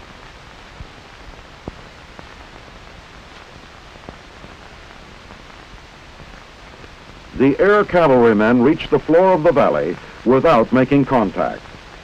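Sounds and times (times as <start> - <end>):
film soundtrack hiss: 0.0 - 12.0.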